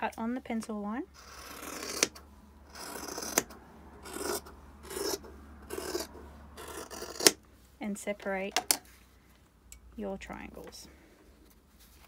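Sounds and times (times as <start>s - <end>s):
scissors cutting fabric: 1.2s - 7.4s.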